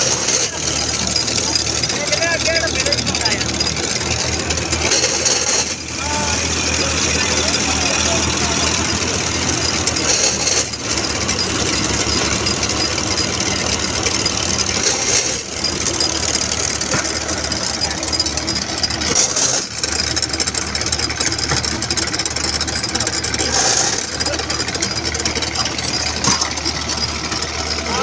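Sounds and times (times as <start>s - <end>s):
brick-making machine running: 0.0s - 28.0s.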